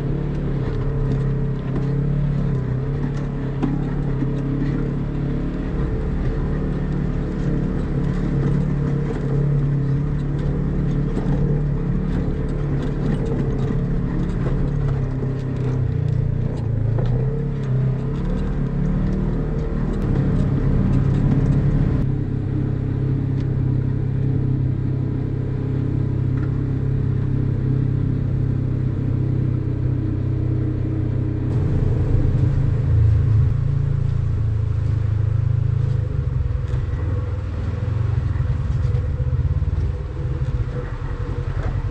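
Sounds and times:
off-road vehicle engine running: 0:00.0 - 0:41.9
rattling and rock clatter: 0:31.5 - 0:33.5.

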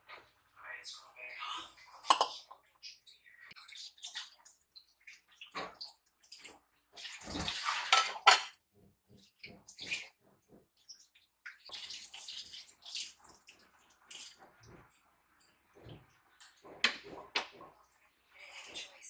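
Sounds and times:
water splashing: 0:01.8 - 0:15.1
dishes and cutlery clattering: 0:02.0 - 0:02.6, 0:07.2 - 0:10.8, 0:16.4 - 0:17.8.

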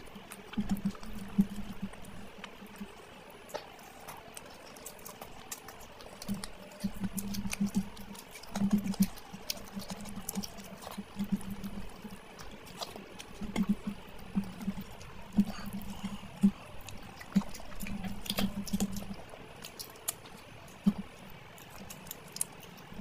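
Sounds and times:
wet chewing and lip-smacking: 0:00.0 - 0:23.0.

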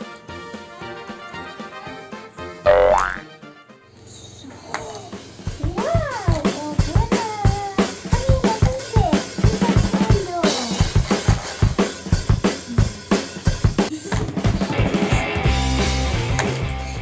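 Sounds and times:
high gliding voice: 0:02.7 - 0:03.2
drum kit fast beat: 0:05.2 - 0:17.0.

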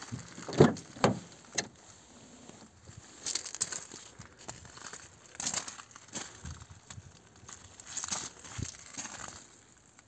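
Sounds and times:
footsteps crunching on gravel: 0:00.0 - 0:10.0.

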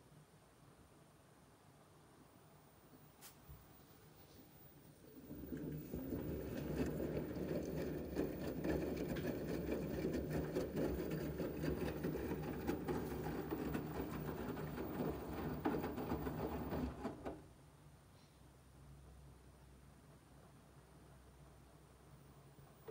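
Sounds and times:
washing machine motor hum: 0:04.9 - 0:17.6
water and laundry sloshing: 0:05.1 - 0:17.4.

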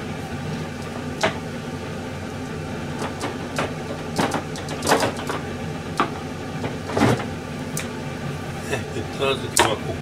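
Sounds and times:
steady low hum: 0:00.0 - 0:10.0
utensils knocking and clicking: 0:03.0 - 0:05.4.

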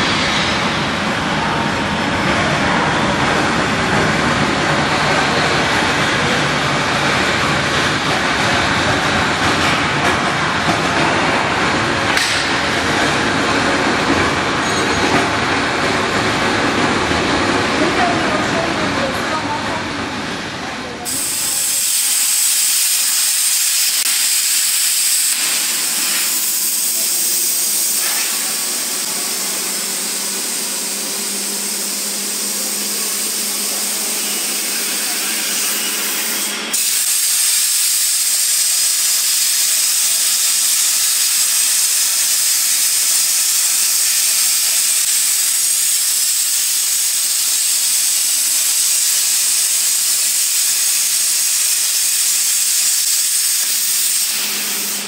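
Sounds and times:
plasma cutting torch hissing: 0:21.0 - 0:55.0.

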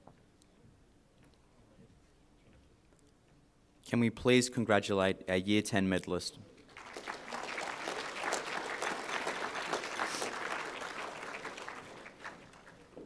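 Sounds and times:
audience applauding: 0:06.7 - 0:13.0.

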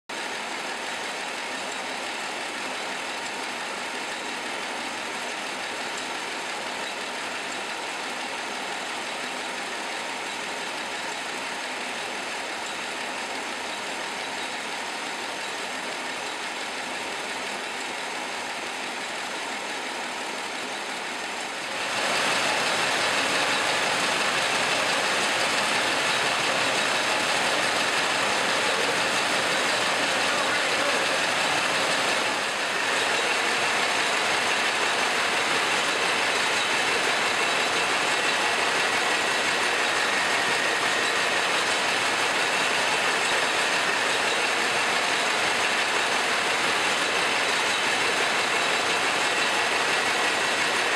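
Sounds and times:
packaging machine whirring: 0:21.7 - 0:50.9.

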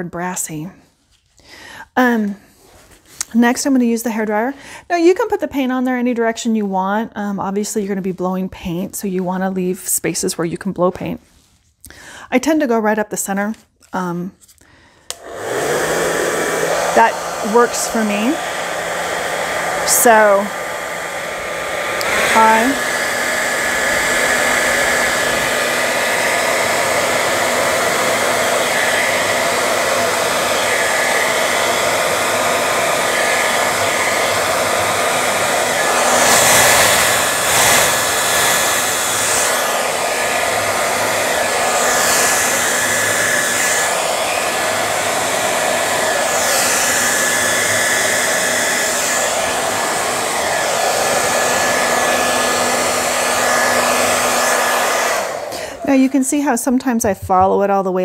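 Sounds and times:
hair dryer blowing: 0:14.9 - 0:58.0.

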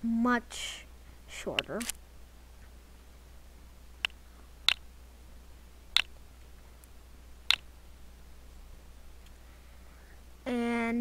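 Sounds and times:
computer mouse clicks: 0:04.0 - 0:04.8.

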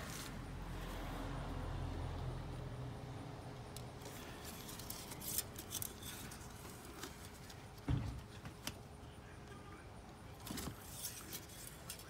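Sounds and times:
dull thump: 0:07.8 - 0:08.3.

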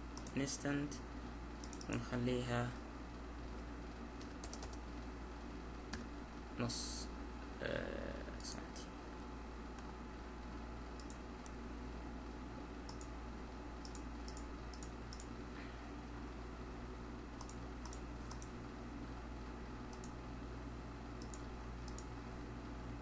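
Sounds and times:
low steady hum: 0:00.0 - 0:23.0
mouse and keyboard clicks: 0:04.2 - 0:04.8.

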